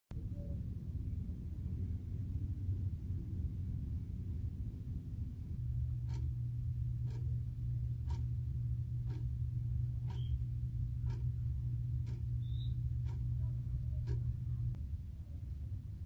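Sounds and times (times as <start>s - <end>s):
steady low hum: 0.1s - 16.0s
wall clock ticking: 5.6s - 14.8s.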